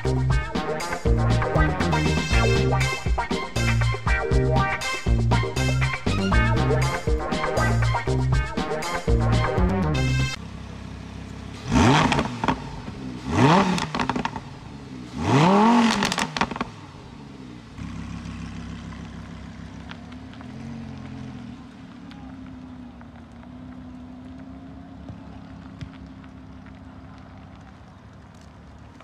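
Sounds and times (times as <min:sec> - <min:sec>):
music: 0:00.0 - 0:10.4
car engine revving: 0:00.0 - 0:27.1
car pulling away: 0:00.0 - 0:29.0.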